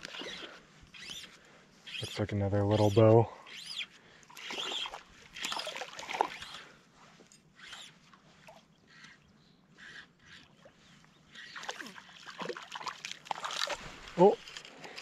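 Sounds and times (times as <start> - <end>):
water splashing and sloshing: 0.0 - 0.8, 4.2 - 8.8, 10.1 - 15.0.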